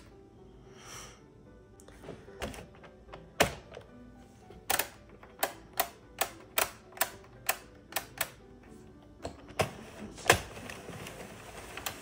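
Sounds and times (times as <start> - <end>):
knitting machine clicking: 4.6 - 12.0.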